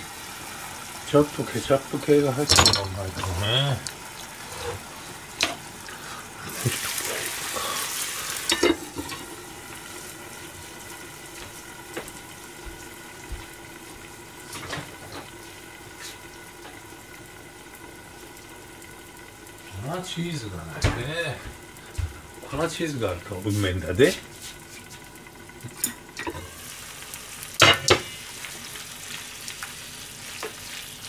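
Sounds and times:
food sizzling in a frying pan: 0.0 - 31.0
metal lid clanking: 2.4 - 3.3.

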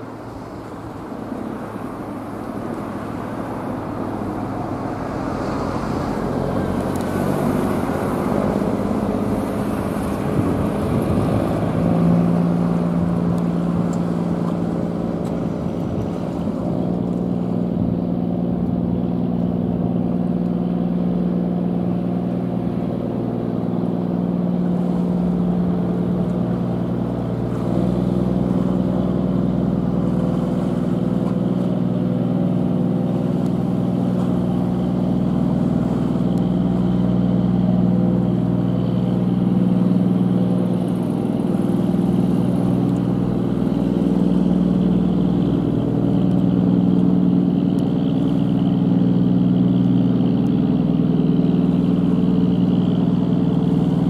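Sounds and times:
boat diesel engine drone: 0.0 - 54.0.

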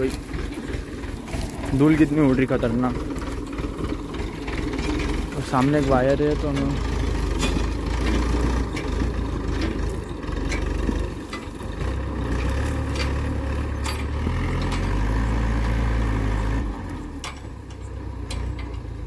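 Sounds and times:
knocks and rattles: 0.0 - 15.8, 17.1 - 19.0
tractor diesel engine under load: 0.0 - 19.0.

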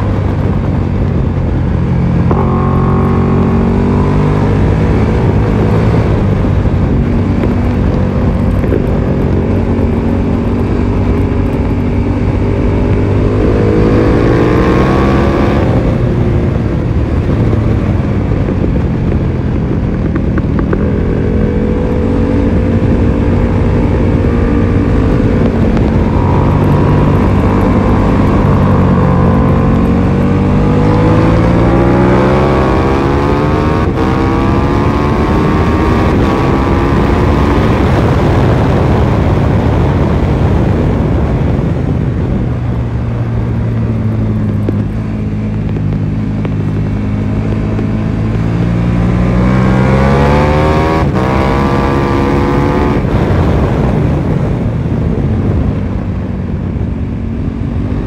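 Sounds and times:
heavy wind rush: 0.0 - 58.0
motorcycle engine: 0.0 - 58.0.

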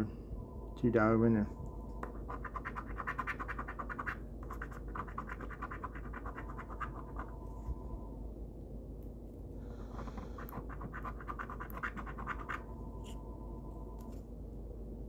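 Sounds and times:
scratch-off ticket scraping: 2.2 - 7.3, 10.4 - 12.6.

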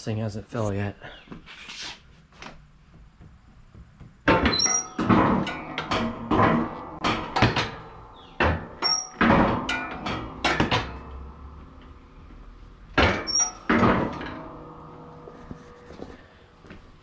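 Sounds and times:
sharp metal clanks and knocks: 4.2 - 15.8.

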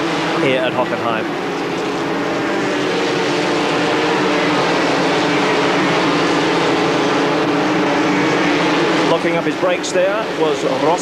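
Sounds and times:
race car engines droning: 0.0 - 11.0.

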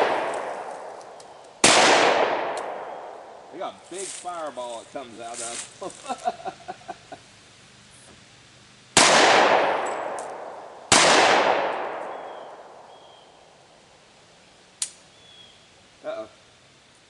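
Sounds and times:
gunshot echo: 0.0 - 3.4, 9.0 - 12.9
pistol shots: 0.0 - 3.4, 9.0 - 12.8.

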